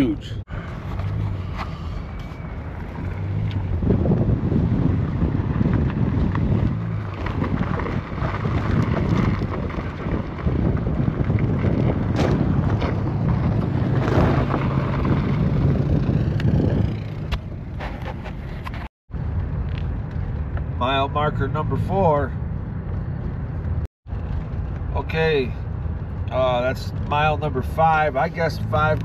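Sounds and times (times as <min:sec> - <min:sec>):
car engine and tyres droning: 0:00.0 - 0:29.0
wind rush on microphone: 0:01.6 - 0:20.8.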